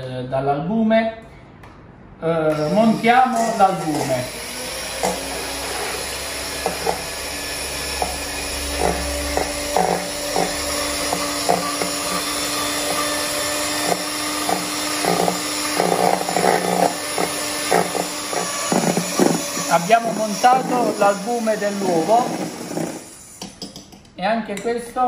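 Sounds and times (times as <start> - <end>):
electric hand mixer running: 2.5 - 23.4.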